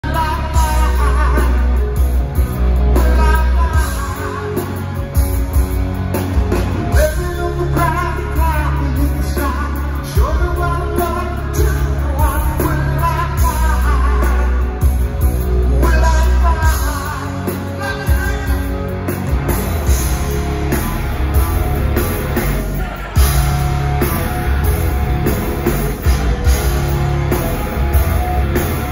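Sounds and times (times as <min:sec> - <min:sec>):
man singing lead vocals: 0:00.0 - 0:05.2, 0:06.6 - 0:20.2
live rock band: 0:00.0 - 0:28.9.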